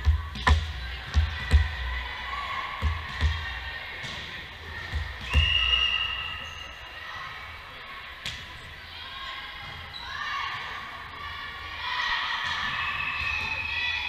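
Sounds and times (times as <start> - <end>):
ball bouncing on wooden floor: 2.8 - 3.5
referee's whistle: 5.2 - 7.0, 12.7 - 14.0.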